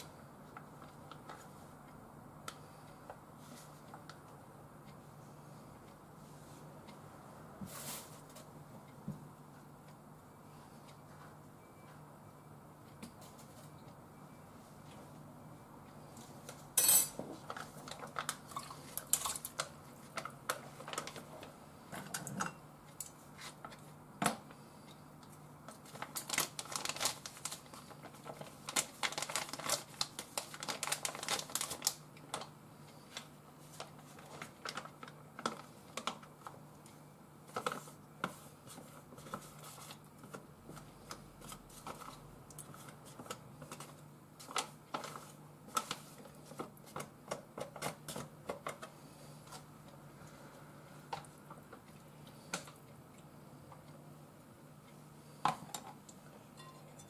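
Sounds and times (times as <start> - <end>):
plastic pouch rustling: 25.8 - 32.5.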